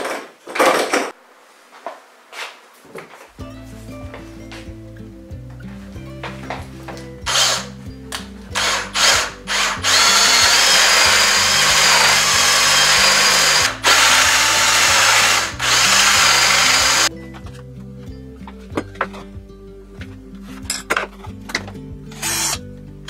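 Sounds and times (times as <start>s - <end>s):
background music: 3.4s - 23.0s
cordless drill boring into wood: 7.3s - 7.7s, 8.6s - 17.1s, 22.2s - 22.6s.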